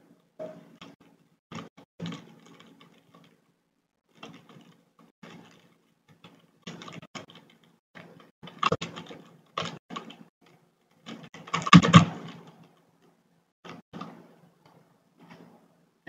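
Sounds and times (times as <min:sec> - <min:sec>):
typing on computer keyboard: 0:04.1 - 0:12.7.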